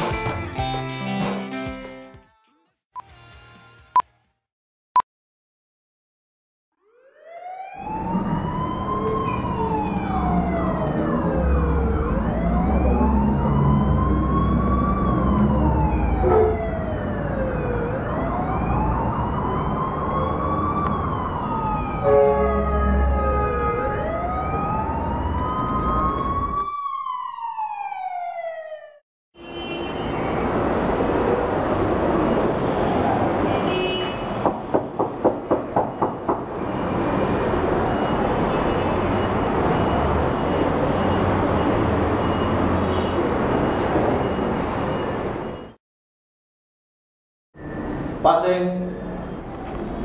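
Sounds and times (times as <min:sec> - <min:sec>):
emergency siren wailing: 0:06.7 - 0:29.0.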